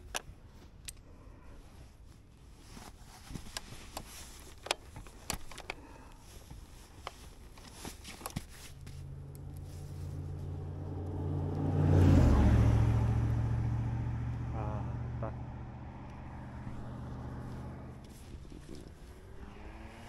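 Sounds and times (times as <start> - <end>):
straps rattling: 2.3 - 10.7
plastic buckles clicking: 3.4 - 8.6
vehicle engine passing by: 9.0 - 20.0.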